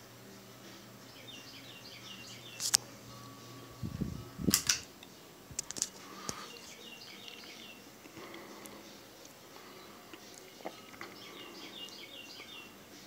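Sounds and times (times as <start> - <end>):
ceiling fan humming: 0.0 - 13.0
sharp clicks: 2.6 - 2.8, 4.5 - 4.9, 5.6 - 6.4.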